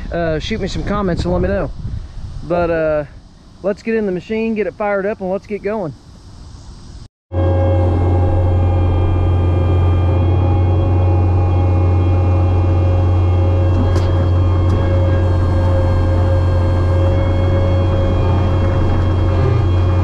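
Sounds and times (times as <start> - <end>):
diesel engine running steadily: 7.3 - 20.0.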